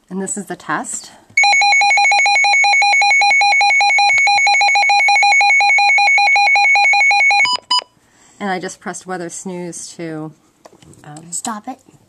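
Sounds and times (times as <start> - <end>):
radio alarm pulsing beeps: 1.4 - 7.9.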